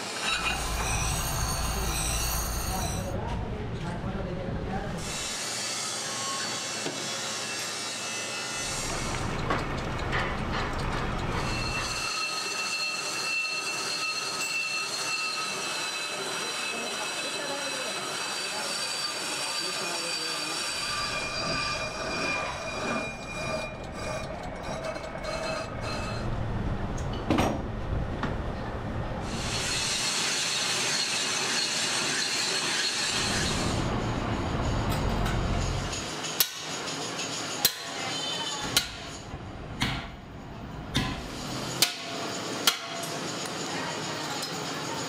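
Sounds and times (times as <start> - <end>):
lathe cutting tool squeal: 0.0 - 3.2, 5.0 - 9.4, 10.8 - 26.4, 29.2 - 39.3, 41.3 - 45.0
lathe running noise: 5.0 - 26.3, 29.2 - 39.4.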